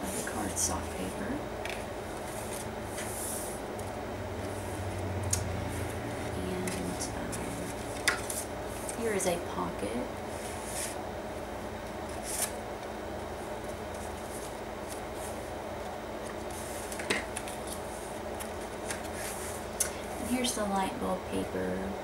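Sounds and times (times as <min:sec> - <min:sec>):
room noise: 0:00.0 - 0:22.0
paper pages rustling: 0:05.7 - 0:09.0, 0:12.0 - 0:12.6, 0:13.6 - 0:15.5, 0:16.2 - 0:19.6.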